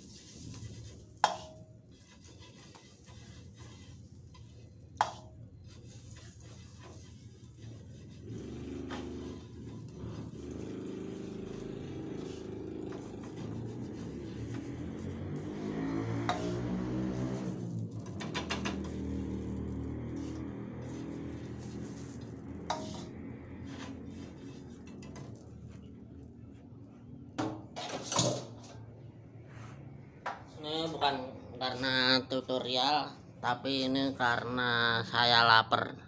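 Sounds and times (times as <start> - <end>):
vehicle engine humming: 6.8 - 27.4.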